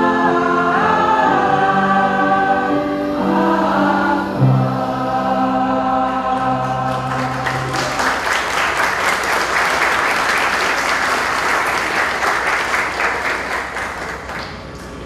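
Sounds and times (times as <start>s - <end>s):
choir holding a chord: 0.0s - 8.3s
audience applauding: 6.5s - 14.7s.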